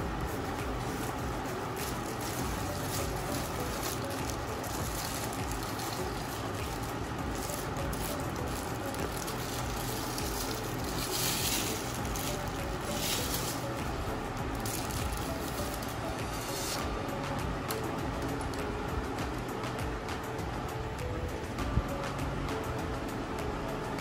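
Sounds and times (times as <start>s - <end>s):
foam and plastic wrap rustling: 0.1s - 16.9s.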